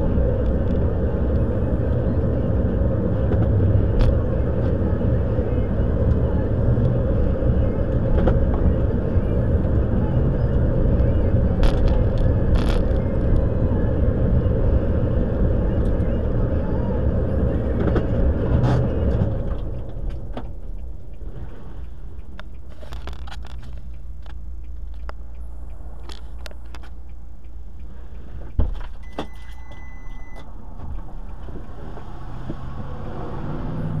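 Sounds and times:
short steady beep: 29.0s - 30.5s.

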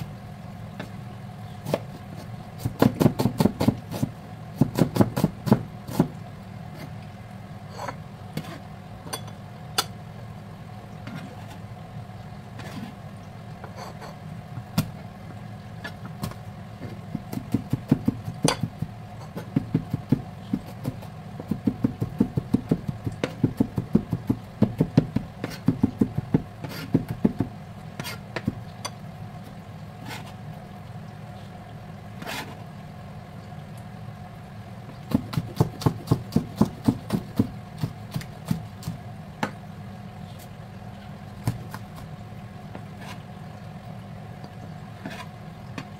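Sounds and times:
knife chopping on cutting board: 2.6s - 6.1s, 35.1s - 39.0s
knife scraping across board: 7.7s - 8.6s, 11.0s - 11.6s, 12.6s - 13.0s, 25.4s - 25.7s, 26.6s - 27.0s, 28.0s - 28.2s, 30.0s - 30.4s, 32.2s - 32.6s, 43.0s - 43.2s, 45.0s - 45.3s.

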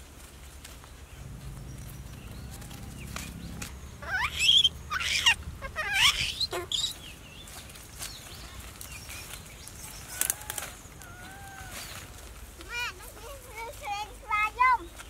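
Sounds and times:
leafy branches rustling: 0.0s - 15.0s
baby monkey squealing: 4.0s - 7.0s.

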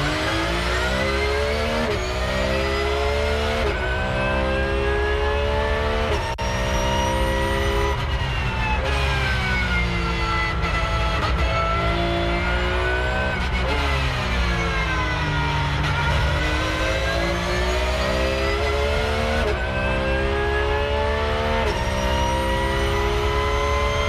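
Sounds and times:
race car engine revving: 0.0s - 24.0s.

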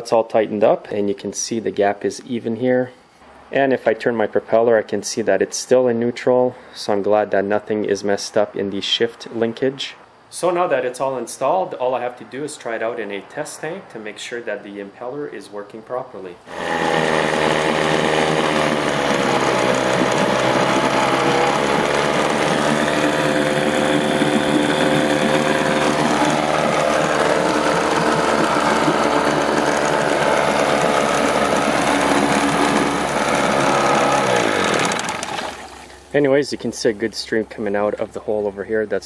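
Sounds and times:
outboard motor running: 16.5s - 36.1s
propeller churning water: 16.5s - 36.1s.

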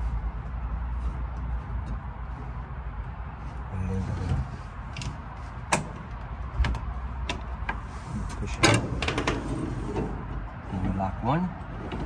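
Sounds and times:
windshield frame knocking: 4.4s - 7.8s.

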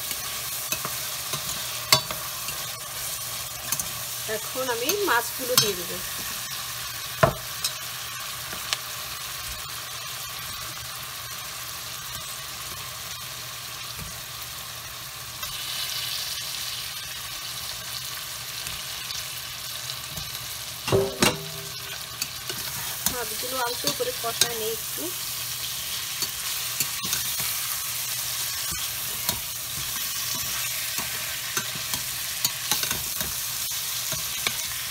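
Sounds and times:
food sizzling in a pot: 0.0s - 34.9s.

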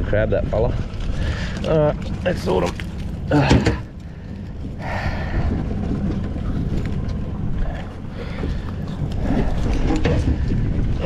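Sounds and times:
wind buffeting microphone: 0.0s - 11.0s
outboard motor running: 0.1s - 11.0s.

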